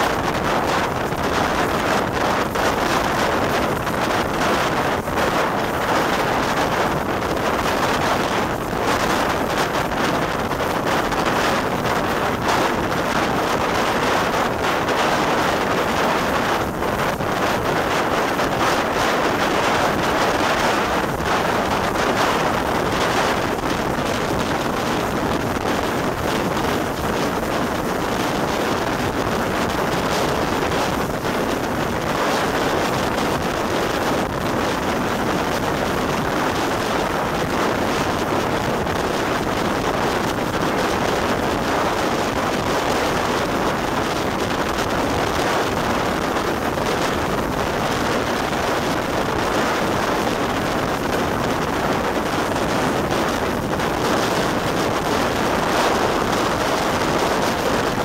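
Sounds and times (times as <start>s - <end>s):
wind rush on microphone: 0.0s - 58.0s.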